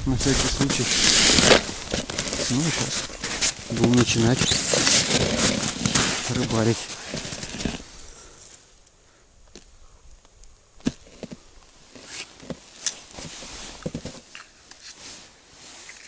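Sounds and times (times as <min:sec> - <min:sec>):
ice skimmer scraping ice: 0:00.3 - 0:07.8
fishing rod handling sounds: 0:11.1 - 0:15.1, 0:15.8 - 0:16.0.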